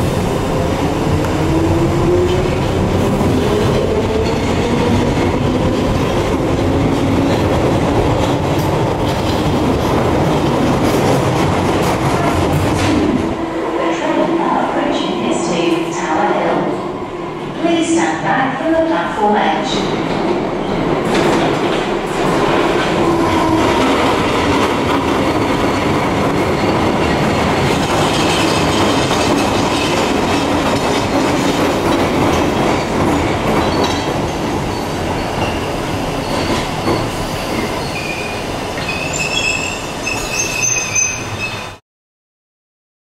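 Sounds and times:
train wheels rumbling on rail: 0.0s - 18.0s, 19.5s - 41.8s
metallic wheel squeal: 37.8s - 41.8s.

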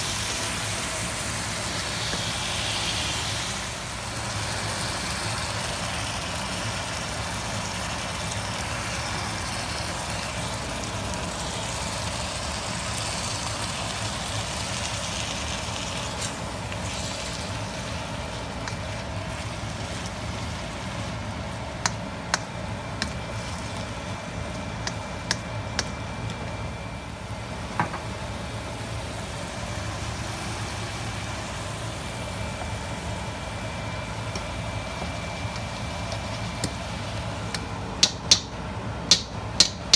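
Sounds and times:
food sizzling in a wok: 0.0s - 39.9s
steady low hum: 0.0s - 39.9s
utensil clicking against wok: 21.8s - 23.2s, 24.8s - 25.9s, 37.5s - 38.5s, 39.1s - 39.9s.

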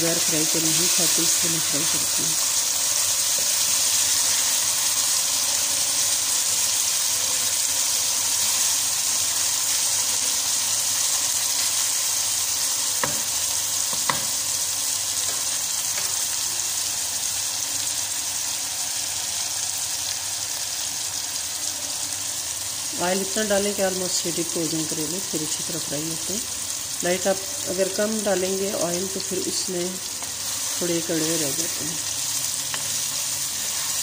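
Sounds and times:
vegetables sizzling in hot oil: 0.0s - 34.0s
spoon knocking against pan: 13.0s - 13.3s, 13.9s - 14.4s
wooden spoon stirring: 30.2s - 34.0s.

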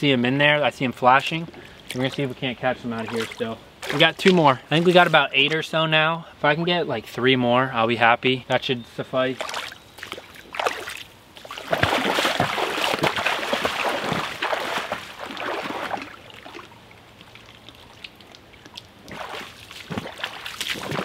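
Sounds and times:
stream trickling: 0.0s - 6.4s, 9.2s - 21.0s
water splashing and sloshing: 1.2s - 5.8s, 9.4s - 21.0s.

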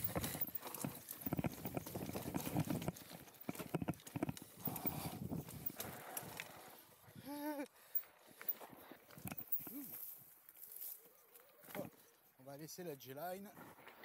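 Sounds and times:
bike rattling: 0.0s - 6.8s, 8.3s - 10.1s.

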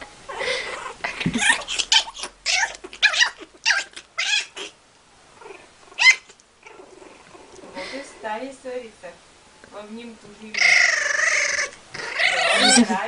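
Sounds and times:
young pet squealing and yowling: 0.3s - 4.8s, 5.5s - 6.9s, 10.5s - 13.0s.

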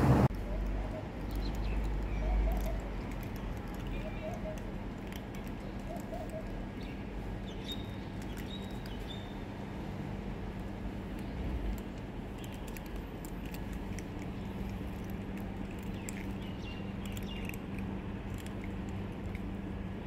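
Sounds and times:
low background hum: 0.0s - 20.0s
cats crunching dry kibble: 0.6s - 20.0s.

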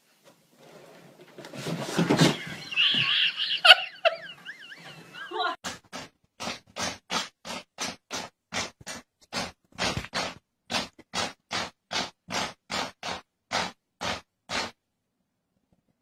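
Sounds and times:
cat claws scratching hard surface: 5.6s - 14.7s.

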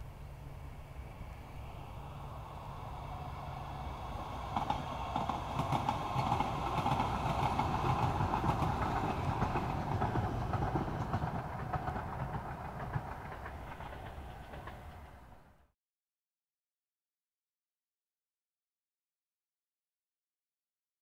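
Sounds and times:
light rail train passing: 0.0s - 15.7s
train wheels clicking over rails: 0.6s - 15.6s.

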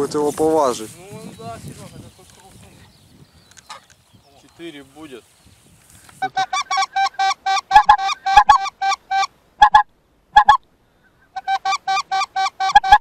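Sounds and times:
goose call honks: 6.2s - 9.8s, 10.4s - 10.6s, 11.3s - 13.0s.

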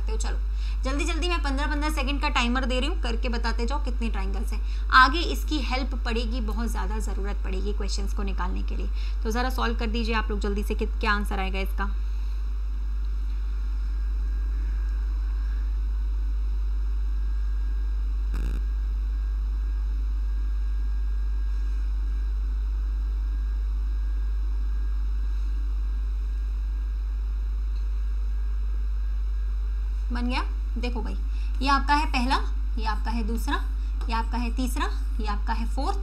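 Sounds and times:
low electrical hum: 0.0s - 36.0s.

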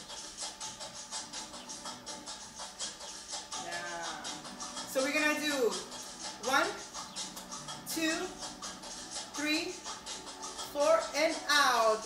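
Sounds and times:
music with light percussion: 0.0s - 12.0s
person speaking: 3.6s - 4.4s.

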